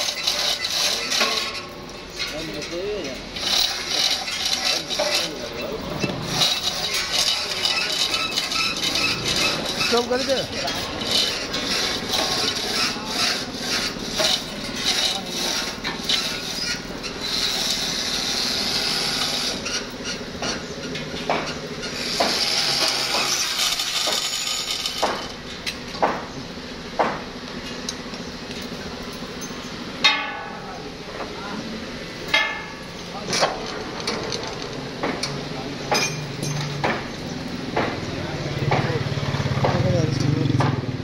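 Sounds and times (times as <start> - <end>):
ringing metal strike: 29.4 - 30.8
metallic knocks and clinks: 35.9 - 37.2.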